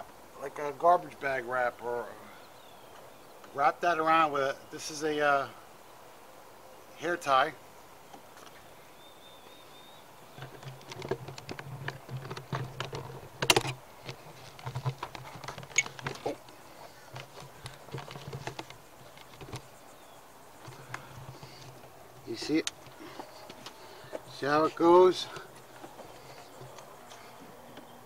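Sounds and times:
plastic clicking and crinkling: 10.3s - 19.7s.

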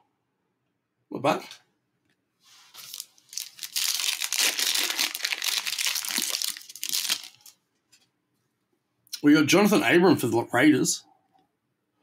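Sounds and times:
foil wrapper crinkling: 2.6s - 7.6s.

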